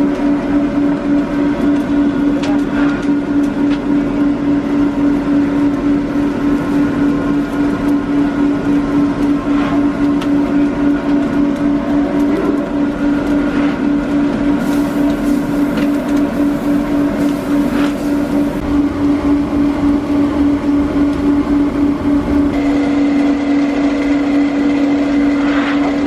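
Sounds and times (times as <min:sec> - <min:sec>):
mill machinery motor humming: 0:00.0 - 0:26.0.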